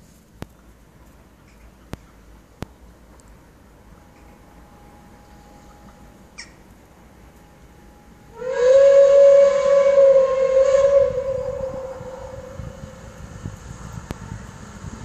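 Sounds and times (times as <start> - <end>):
steam locomotive whistle: 7.4 - 14.9.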